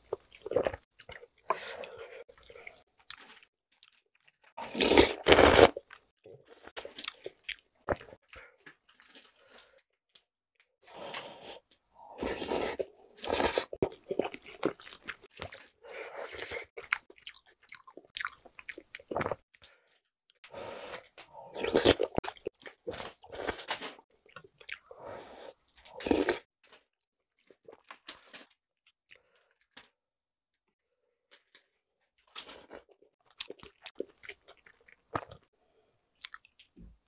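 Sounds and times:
slurping noodles: 0:04.6 - 0:05.8, 0:10.9 - 0:14.8
wet chewing: 0:12.4 - 0:19.8.

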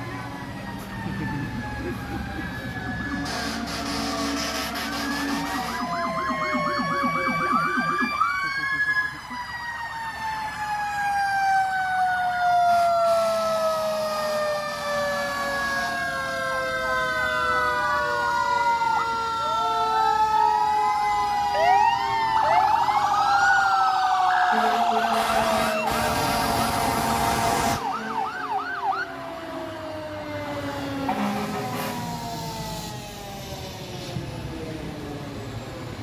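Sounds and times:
siren winding down: 0:00.0 - 0:36.0
sirens sweeping and pulsing: 0:00.0 - 0:36.0
loud horn blast: 0:03.2 - 0:06.0, 0:24.5 - 0:28.0, 0:31.1 - 0:32.0.

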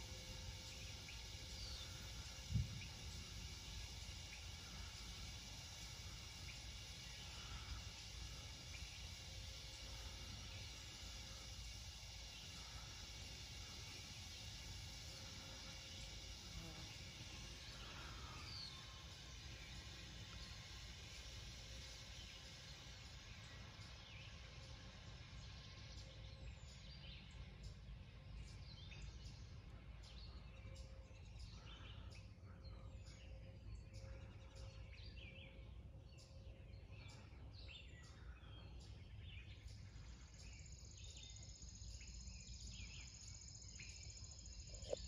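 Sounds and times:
low steady rumble: 0:00.0 - 0:45.0.

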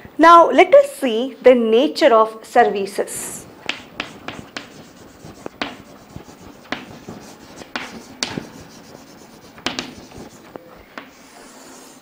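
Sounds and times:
chalk scratching on chalkboard: 0:03.6 - 0:12.0
chalk tapping on board: 0:03.6 - 0:12.0.

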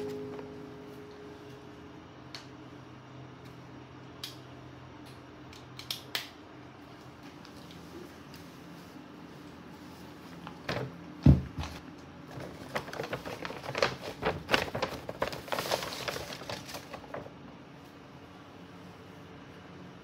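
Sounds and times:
paper bag crinkling: 0:12.2 - 0:17.4.

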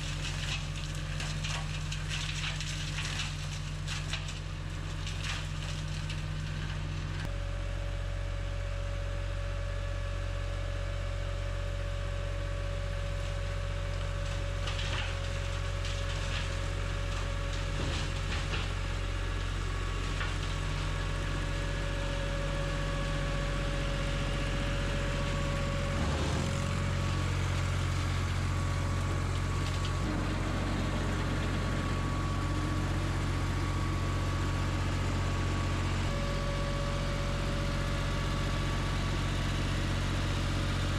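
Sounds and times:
tractor diesel engine running: 0:00.0 - 0:40.9
flail mower whine: 0:13.1 - 0:40.9.

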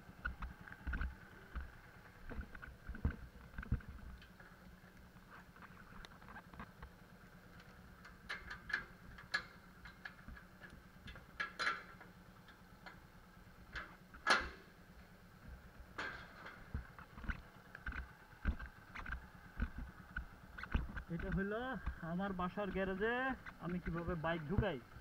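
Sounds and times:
steady hum: 0:00.0 - 0:25.0
metallic clicks and knocks: 0:07.6 - 0:13.0, 0:13.7 - 0:14.6.

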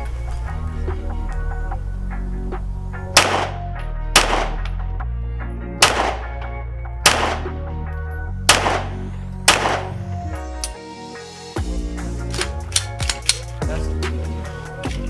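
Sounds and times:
background music with bass line: 0:00.0 - 0:15.0
pistol shots with echo: 0:03.1 - 0:04.7, 0:05.8 - 0:06.4, 0:07.0 - 0:07.6, 0:08.5 - 0:10.1.

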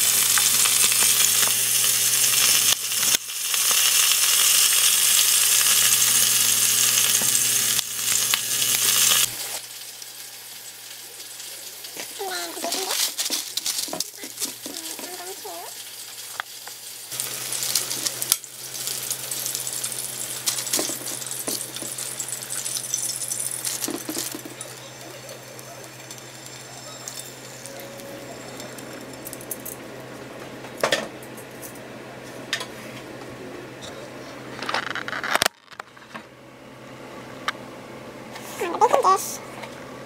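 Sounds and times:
chicken sizzling and crackling: 0:00.0 - 0:30.2.

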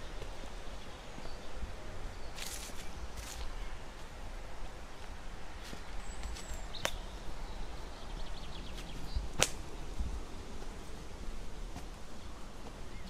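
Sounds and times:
footsteps on woodland path: 0:00.0 - 0:13.0
twigs snapping: 0:06.2 - 0:07.0, 0:09.3 - 0:09.7.

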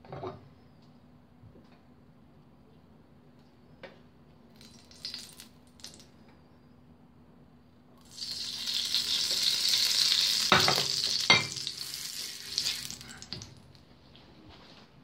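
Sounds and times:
loud sizzling on stove: 0:08.0 - 0:13.6.

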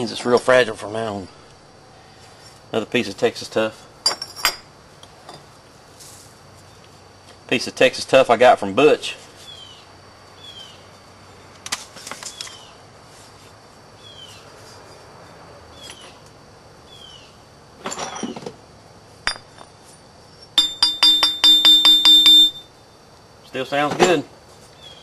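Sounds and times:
scraping rustles: 0:05.9 - 0:07.1, 0:11.7 - 0:16.2
stone tapping glassy clink: 0:19.3 - 0:19.7, 0:20.6 - 0:22.7.

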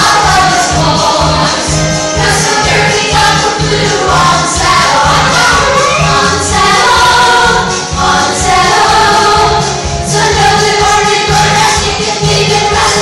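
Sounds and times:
group singing over a beat: 0:00.0 - 0:13.0.

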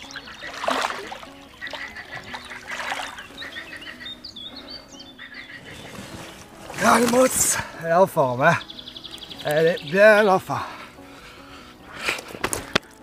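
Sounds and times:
fish splashing in water: 0:00.0 - 0:03.7
birds calling: 0:00.0 - 0:13.0.

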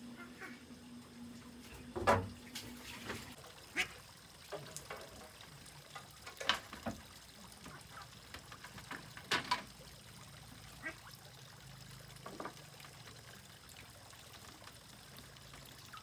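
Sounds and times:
ducks quacking: 0:00.0 - 0:00.6, 0:03.7 - 0:04.0
small water splashes: 0:01.4 - 0:16.0.

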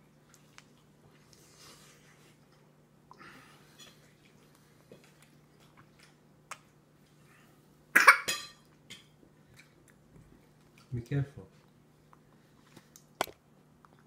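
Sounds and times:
mouth smacks and chewing: 0:00.1 - 0:01.4, 0:04.0 - 0:07.2, 0:08.7 - 0:10.9
toddler coughing: 0:08.0 - 0:08.4.

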